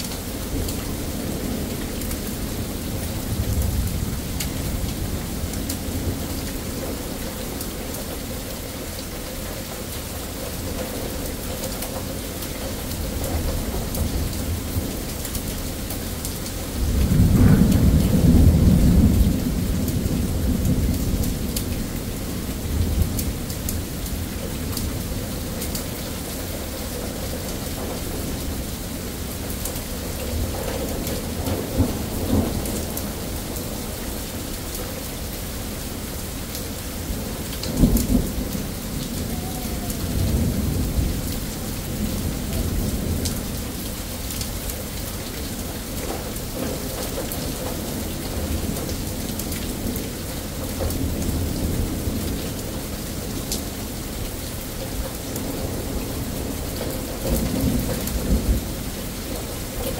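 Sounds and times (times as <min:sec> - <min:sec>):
steady rain: 0:00.0 - 0:59.9
rolling thunder: 0:13.2 - 0:34.8, 0:36.2 - 0:54.2.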